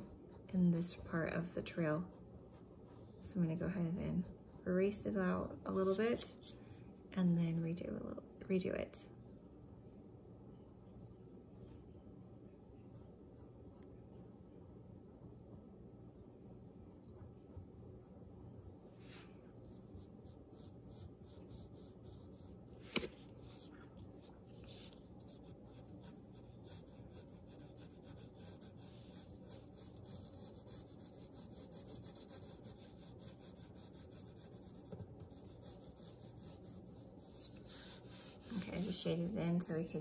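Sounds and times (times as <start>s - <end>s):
pencil scratching on paper: 5.7s - 6.6s, 16.9s - 23.7s, 24.3s - 39.0s.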